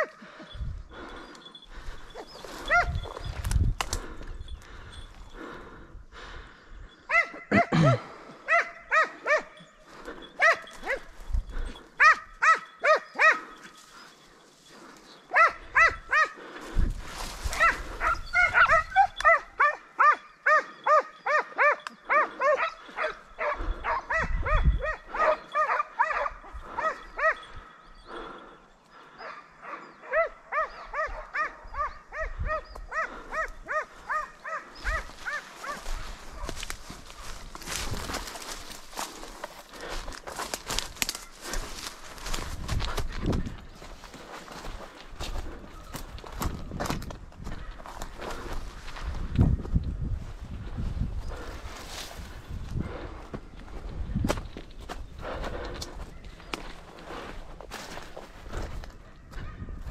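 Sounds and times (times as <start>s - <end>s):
dog yelping barks: 2.6s - 3.1s, 7.1s - 7.8s, 8.4s - 9.6s, 10.4s - 11.2s, 12.0s - 13.8s, 15.3s - 16.4s, 17.5s - 27.5s, 29.2s - 36.5s.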